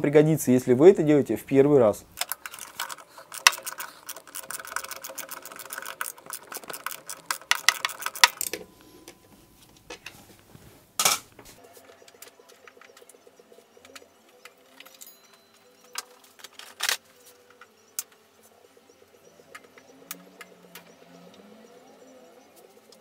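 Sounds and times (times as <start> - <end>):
hand tools clicking and rattling: 2.2 - 8.7.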